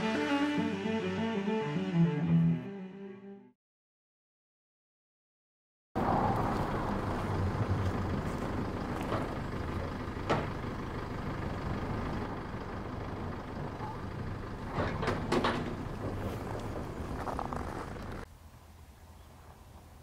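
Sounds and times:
engine idling hum: 0:06.3 - 0:20.0.

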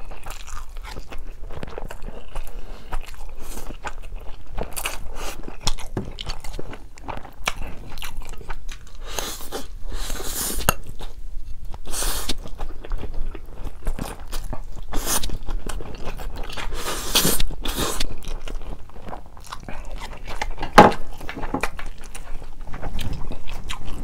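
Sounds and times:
wet chewing with mouth clicks: 0:00.0 - 0:24.0
slurping noodles: 0:16.7 - 0:18.1.

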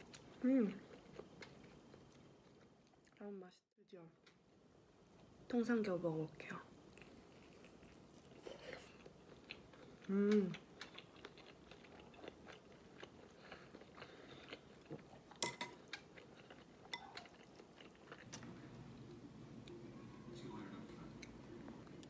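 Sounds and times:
person chewing: 0:00.0 - 0:03.2, 0:06.9 - 0:18.9
person humming: 0:10.1 - 0:10.6.

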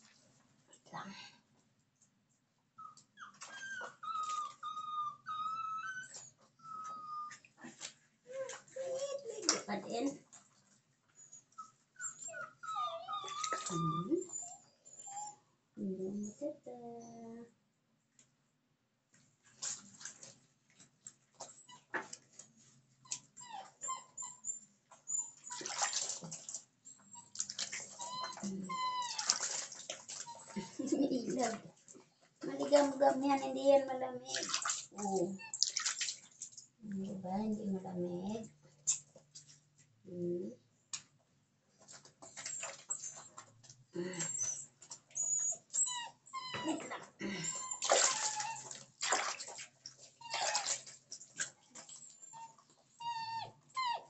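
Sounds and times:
dog whining: 0:02.8 - 0:07.4, 0:11.2 - 0:15.4, 0:23.1 - 0:25.8, 0:26.9 - 0:31.0, 0:44.1 - 0:48.8, 0:50.2 - 0:50.8, 0:51.8 - 0:54.0
puppy whimpering: 0:02.8 - 0:07.4, 0:11.2 - 0:15.4, 0:23.1 - 0:25.7, 0:26.9 - 0:31.6, 0:44.0 - 0:48.8, 0:50.2 - 0:50.8, 0:51.8 - 0:54.0
water splashing: 0:25.5 - 0:26.6, 0:27.3 - 0:31.7, 0:34.3 - 0:36.7, 0:47.8 - 0:52.0.

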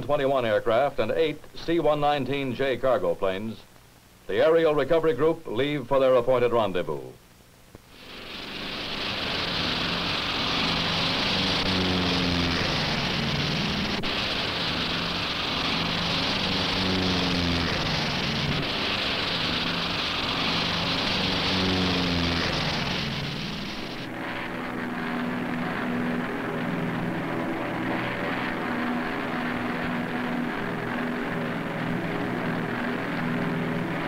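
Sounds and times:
propeller plane engines drone: 0:07.8 - 0:34.0
hiss: 0:07.9 - 0:34.0.

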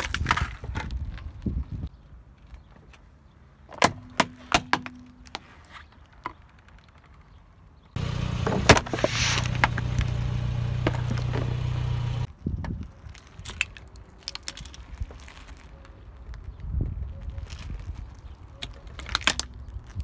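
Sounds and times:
plastic box cracking under tyre: 0:00.0 - 0:01.6, 0:12.4 - 0:20.0
loud crunch under tyre: 0:04.9 - 0:20.0
car engine running: 0:08.0 - 0:12.3.

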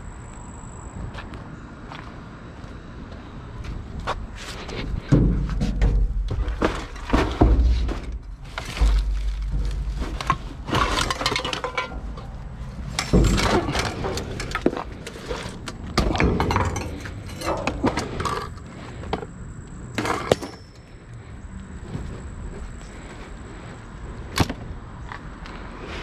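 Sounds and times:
items clattering in a dumpster: 0:04.7 - 0:19.3, 0:20.0 - 0:20.9.

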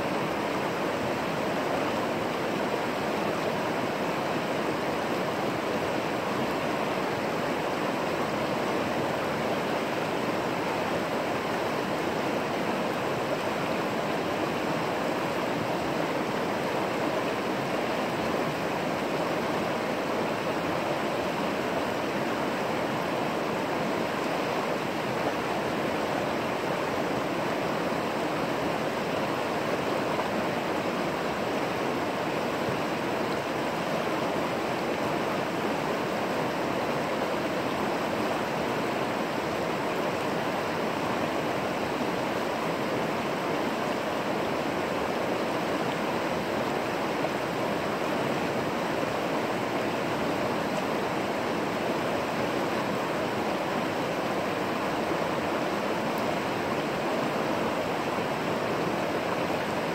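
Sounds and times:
creek water flowing: 0:00.0 - 0:59.9.

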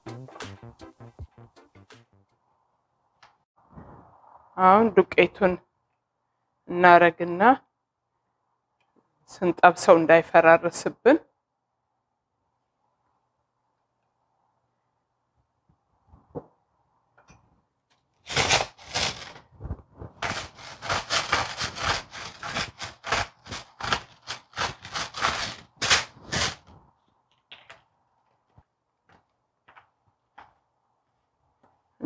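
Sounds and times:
salt grinder crunching: 0:18.2 - 0:19.4, 0:20.2 - 0:26.6.

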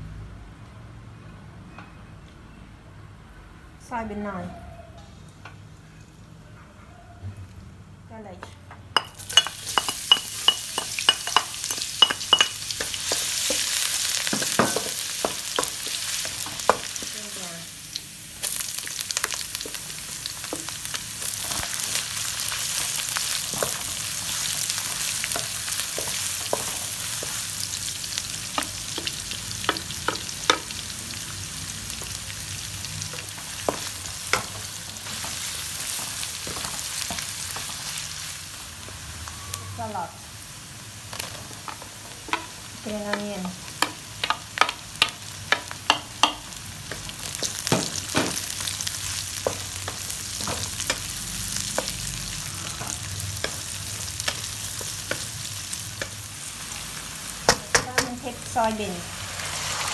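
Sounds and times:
garlic sizzling in hot oil: 0:09.0 - 0:59.9
wooden spatula knocking on pan: 0:28.5 - 0:30.7, 0:43.1 - 0:48.5.

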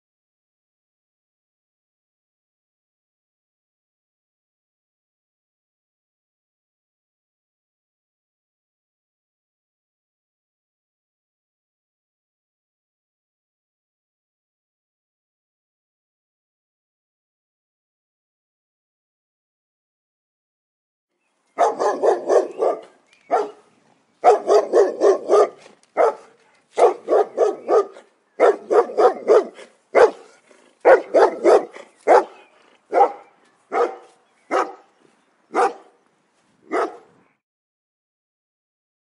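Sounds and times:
dog barking: 0:21.6 - 0:34.9, 0:35.5 - 0:36.0, 0:36.7 - 0:37.1.

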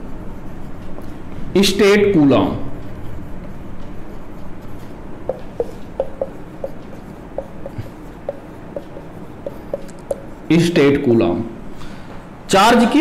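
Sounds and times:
low room hum: 0:00.0 - 0:13.0
marker squeaking on whiteboard: 0:03.4 - 0:10.5.

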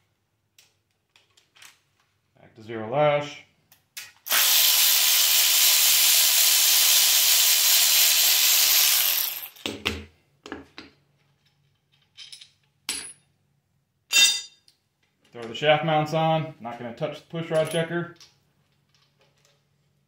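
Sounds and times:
metal parts clicking and knocking: 0:00.6 - 0:02.1, 0:11.2 - 0:13.2, 0:17.5 - 0:20.0
cordless ratchet running: 0:04.3 - 0:09.6.

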